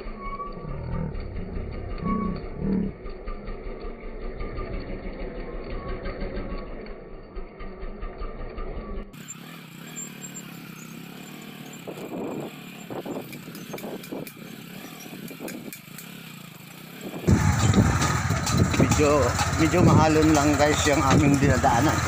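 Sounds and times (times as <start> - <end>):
motorcycle engine: 0.0 - 22.0
knocks and rattles over bumps: 11.5 - 22.0.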